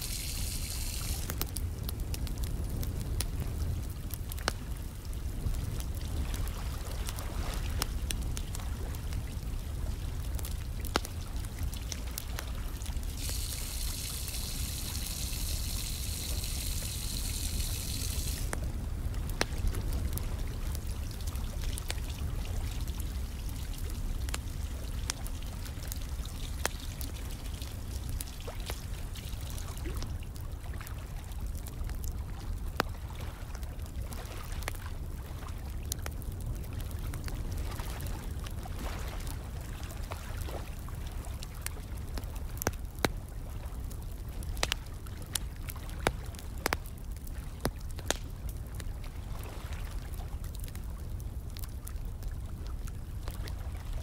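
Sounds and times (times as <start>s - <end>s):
running pouring water: 0.0s - 1.3s, 13.2s - 18.5s
fire crackling and popping: 0.0s - 54.0s.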